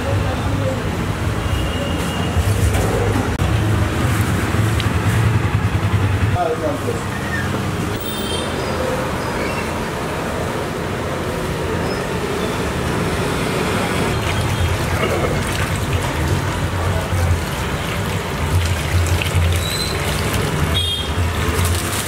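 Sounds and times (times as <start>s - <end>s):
hand sloshing liquid in dough: 14.2s - 22.0s
water pouring in thin stream: 14.2s - 22.0s.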